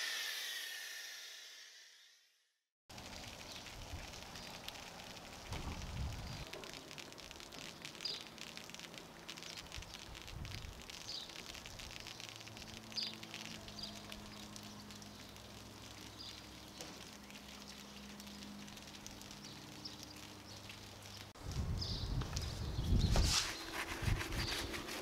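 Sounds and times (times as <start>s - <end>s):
foam bubbles fizzing and popping: 2.9s - 22.5s.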